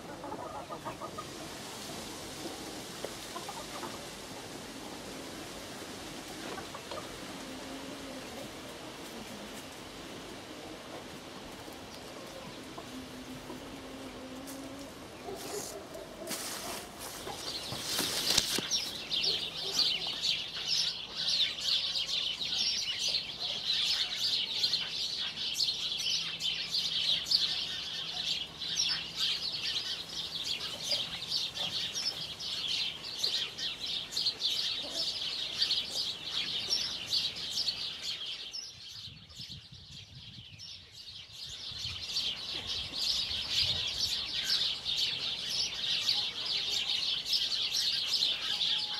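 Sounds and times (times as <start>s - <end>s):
small birds chirping: 6.5s - 48.9s.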